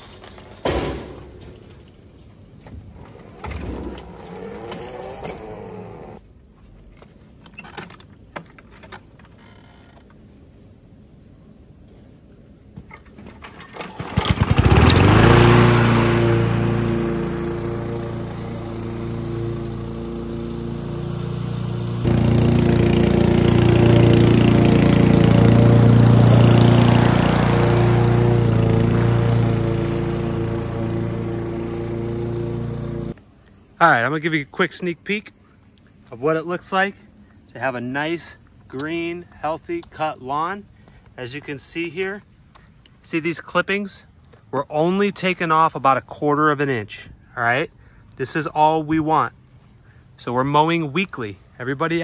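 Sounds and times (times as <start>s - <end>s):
lawn mower rattling down metal ramp: 2.9s - 6.2s, 13.0s - 33.1s.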